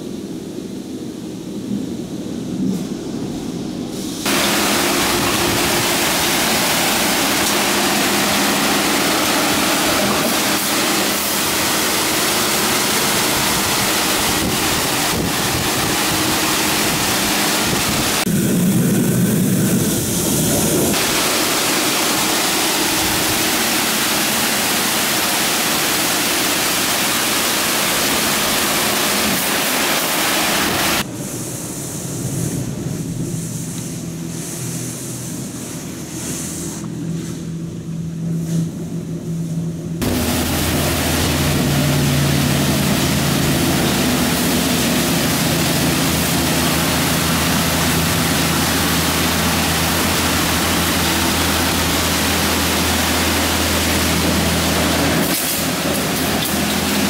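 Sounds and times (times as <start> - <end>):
high-pressure water jets hissing: 4.2 - 36.9, 40.0 - 57.0
low hum: 30.7 - 57.0.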